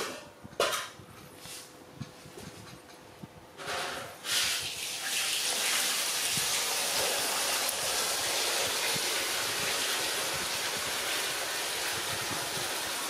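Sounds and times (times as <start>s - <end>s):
steady rushing hiss: 5.9s - 13.0s.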